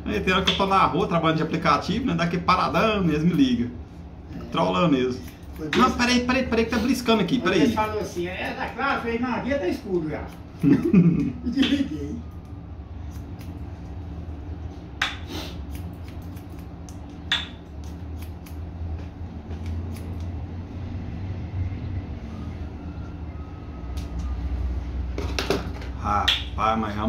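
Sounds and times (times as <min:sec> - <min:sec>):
steady low hum: 0:00.0 - 0:27.0
scissors snipping hair: 0:04.4 - 0:09.1, 0:09.8 - 0:14.0, 0:15.0 - 0:20.4.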